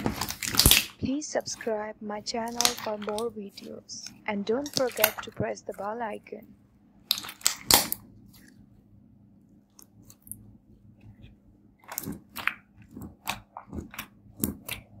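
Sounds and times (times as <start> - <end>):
slime crackling clicks: 7.1 - 8.0.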